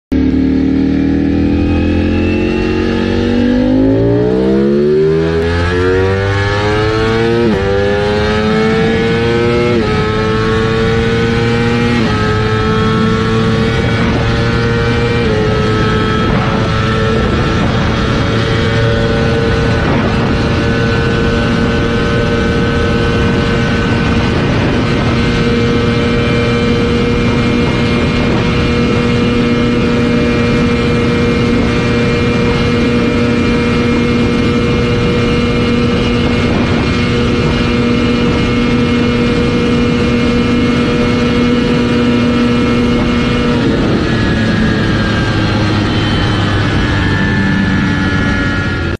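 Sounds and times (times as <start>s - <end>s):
motorcycle engine high-pitched drone: 0.1s - 48.9s
wind rush: 0.3s - 48.9s.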